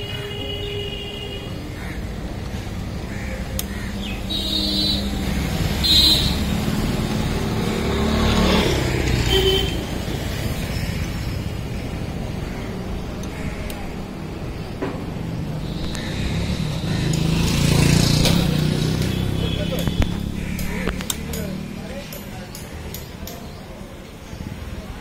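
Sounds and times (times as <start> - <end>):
rumble of vehicle engines: 0.0 - 25.0
sharp click: 19.8 - 21.5.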